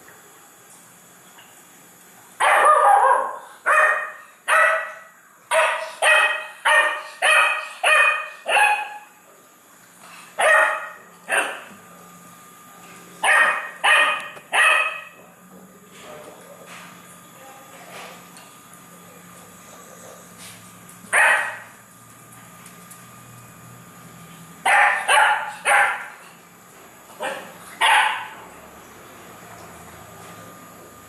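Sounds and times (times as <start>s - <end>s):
puppy barking: 2.4s - 9.1s, 10.4s - 11.7s, 13.2s - 15.2s, 21.1s - 21.7s, 24.6s - 26.2s, 27.2s - 28.4s.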